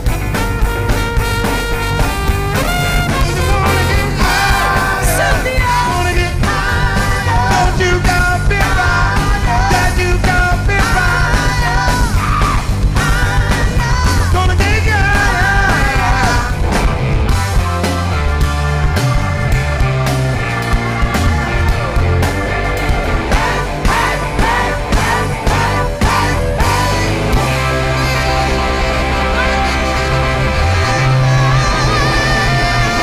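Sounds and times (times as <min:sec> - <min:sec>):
bass guitar: 0:00.0 - 0:33.0
drums: 0:00.0 - 0:33.0
electric guitar: 0:00.0 - 0:33.0
person singing: 0:02.6 - 0:16.6, 0:23.0 - 0:33.0.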